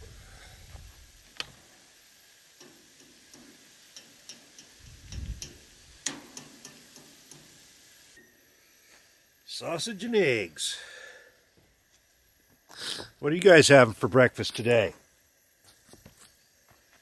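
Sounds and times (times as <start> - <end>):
fat crackling in frying pan: 1.0 - 8.2
utensil clicking in pan: 2.6 - 7.5.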